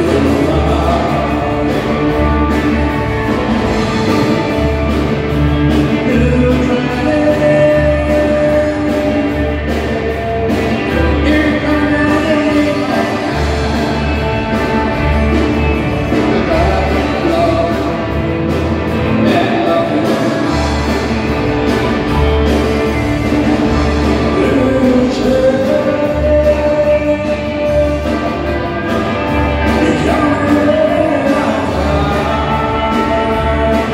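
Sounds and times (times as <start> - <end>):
country dance band: 0.0 - 33.9
person singing: 0.0 - 33.9
pulsing bass line: 0.0 - 33.9.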